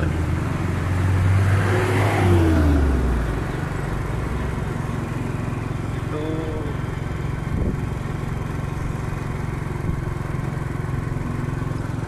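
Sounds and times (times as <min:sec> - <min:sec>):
scooter engine running: 0:00.0 - 0:01.6, 0:02.2 - 0:12.0
wind noise on microphone: 0:07.5 - 0:08.0.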